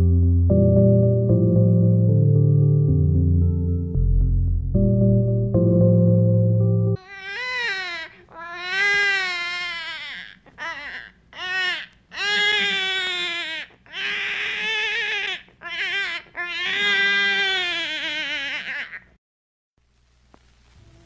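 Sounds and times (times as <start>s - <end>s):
baby crying: 7.0s - 19.1s.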